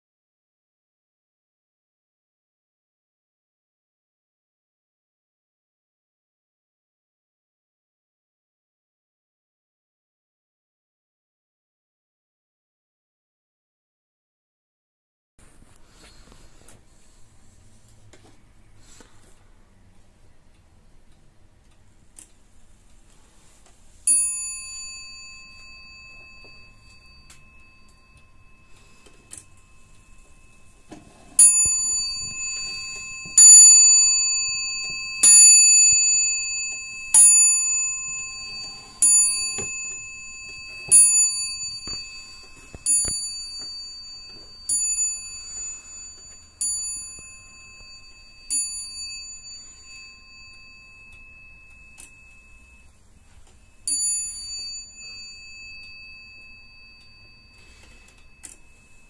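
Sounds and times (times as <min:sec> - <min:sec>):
wall clock striking bell: 0:24.0 - 0:59.0.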